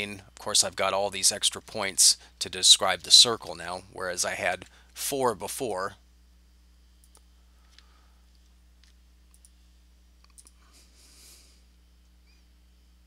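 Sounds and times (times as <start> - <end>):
low electrical hum: 0.0 - 13.0
computer mouse clicks: 7.0 - 7.8, 8.8 - 9.6, 10.2 - 10.6.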